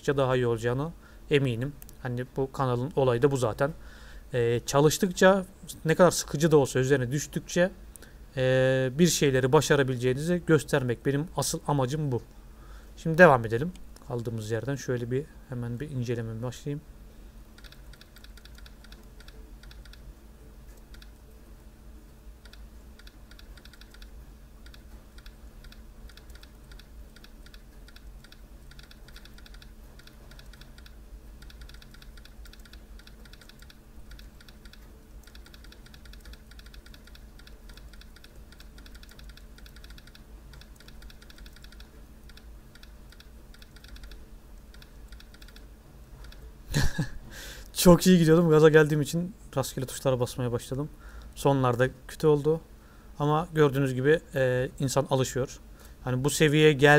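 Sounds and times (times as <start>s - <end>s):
low steady hum: 0.0s - 56.9s
laptop keyboard typing: 17.6s - 20.1s, 20.8s - 21.2s, 22.4s - 46.4s.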